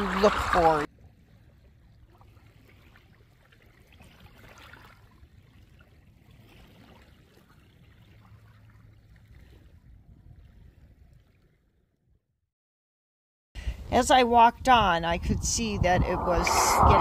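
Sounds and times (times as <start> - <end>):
waves lapping at shore: 0.0 - 1.4, 2.0 - 9.7
low rumble: 15.2 - 17.0.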